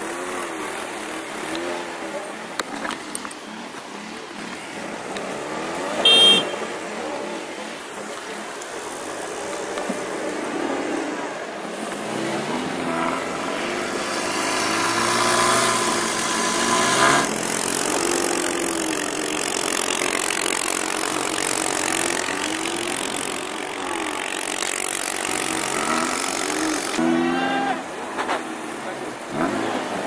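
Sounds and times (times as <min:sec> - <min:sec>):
car engine revving: 0:03.8 - 0:08.0, 0:09.8 - 0:27.9
spinning wheels throwing snow: 0:14.8 - 0:27.0.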